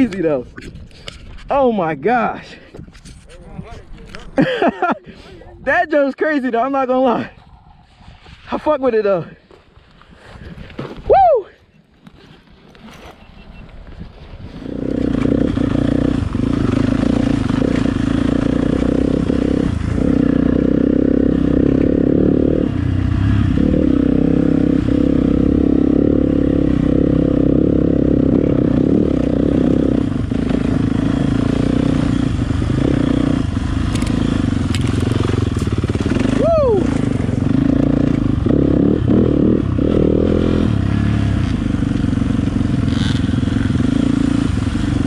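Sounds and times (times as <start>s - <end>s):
dirt bike engine running: 14.5s - 45.0s.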